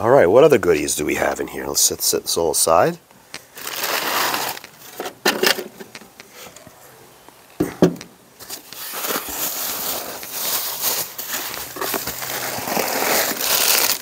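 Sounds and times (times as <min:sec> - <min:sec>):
cardboard box and packing rustling: 0:03.6 - 0:05.9, 0:08.4 - 0:14.0.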